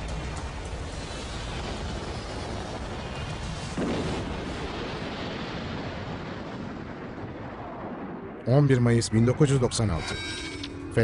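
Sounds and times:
dense rushing noise: 0.0 - 5.1
heavy crash boom: 1.5 - 8.0.

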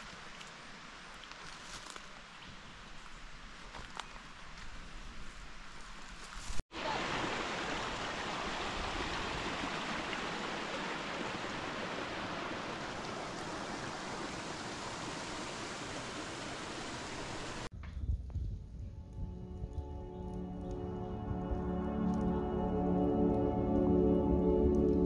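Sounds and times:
stream flowing: 6.7 - 17.7.

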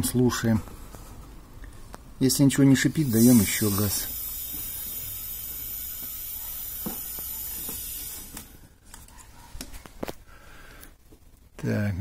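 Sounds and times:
refrigerant gas hissing: 2.8 - 8.7.

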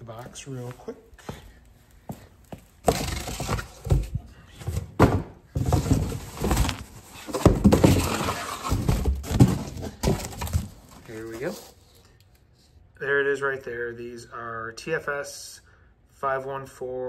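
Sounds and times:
cardboard rustling and scraping: 2.8 - 12.0.

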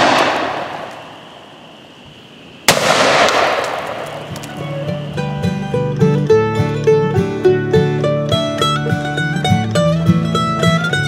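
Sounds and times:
shotgun blast echoing: 0.0 - 1.6, 2.7 - 4.8
plucked-string bluegrass music: 4.3 - 11.0.

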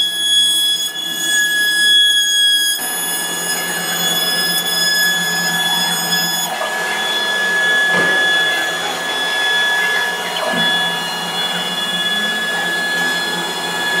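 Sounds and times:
router spindle whine: 0.0 - 14.0.

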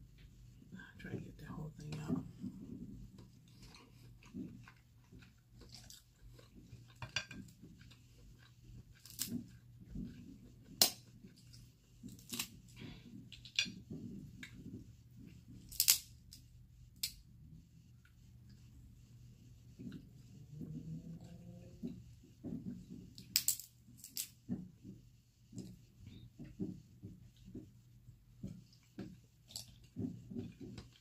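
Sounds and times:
soft chewing: 0.2 - 16.4, 28.4 - 31.0.

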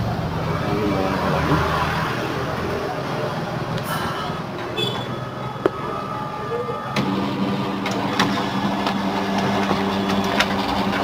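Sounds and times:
printer motor hum: 5.3 - 11.0
printer mechanism clicks: 7.0 - 11.0.

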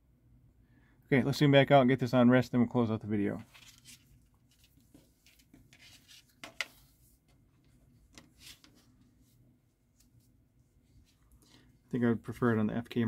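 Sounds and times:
strap rustling: 3.4 - 11.9.

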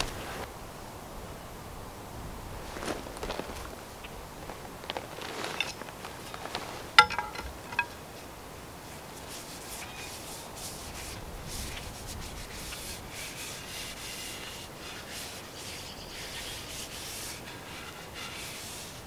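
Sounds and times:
rough rubbing on wooden handle: 9.2 - 19.0.

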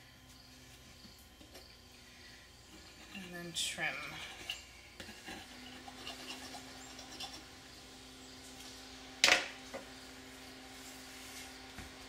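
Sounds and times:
faint steady hum: 0.0 - 12.0
knife scraping dough in a dish: 2.6 - 7.6.

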